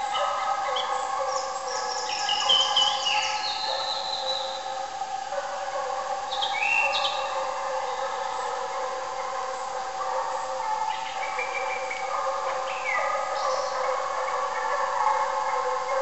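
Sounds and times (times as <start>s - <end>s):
distant hounds baying: 0.0s - 16.0s.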